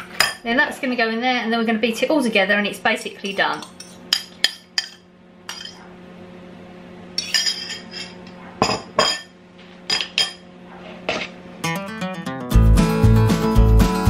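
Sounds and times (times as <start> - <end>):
utensils clinking on bowls: 3.2 - 5.8, 7.2 - 9.3, 9.9 - 10.4.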